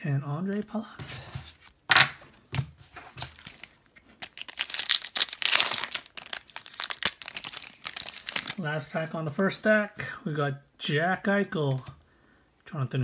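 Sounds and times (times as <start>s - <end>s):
wrapper crinkling: 3.0s - 8.6s.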